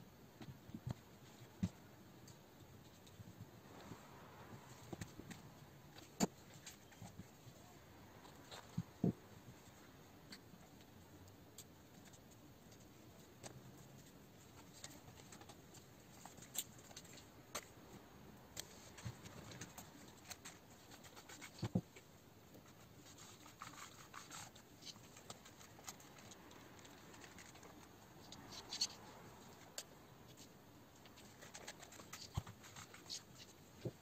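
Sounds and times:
hands handling plastic parts: 18.5 - 34.0.

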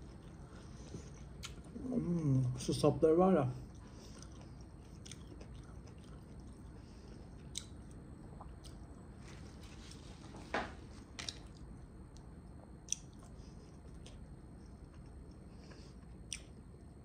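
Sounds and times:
close-up chewing: 3.7 - 9.0.

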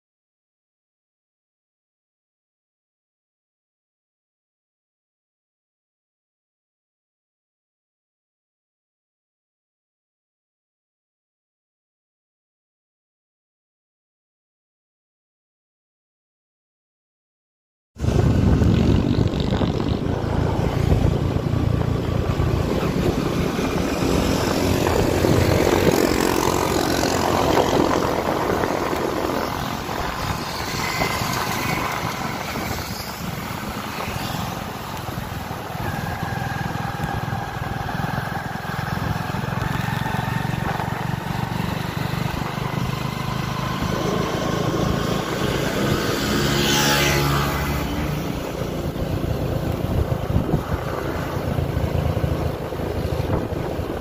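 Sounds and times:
motorcycle engine running: 18.0 - 54.0
road and wind noise: 18.0 - 54.0.

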